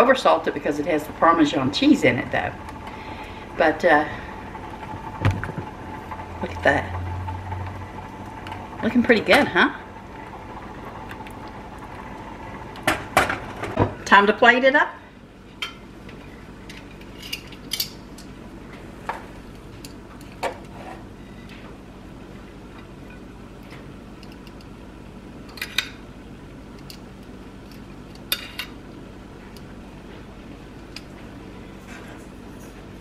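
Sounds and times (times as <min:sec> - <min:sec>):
steady low hum: 0:00.0 - 0:33.0.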